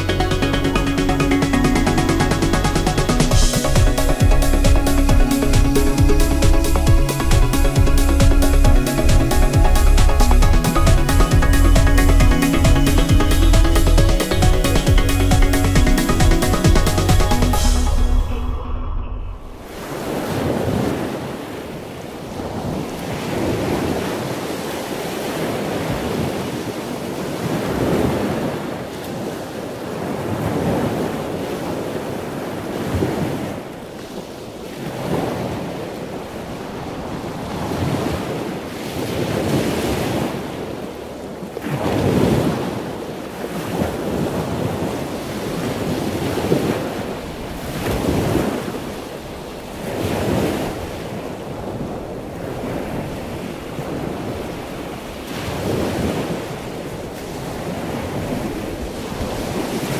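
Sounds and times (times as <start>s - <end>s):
wind buffeting microphone: 18.8s - 59.9s
sea water washing alongside ship: 19.6s - 59.9s.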